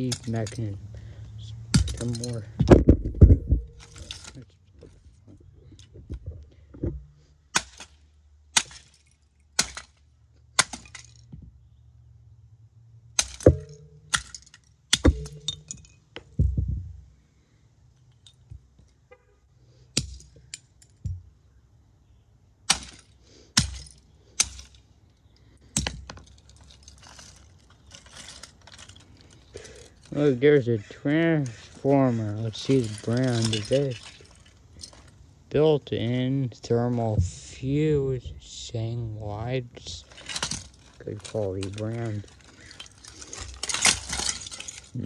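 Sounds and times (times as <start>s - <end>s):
plastic parts clacking on concrete: 0.0s - 0.8s, 1.7s - 11.6s, 13.2s - 17.2s, 19.9s - 21.5s, 22.6s - 35.2s, 39.8s - 45.0s.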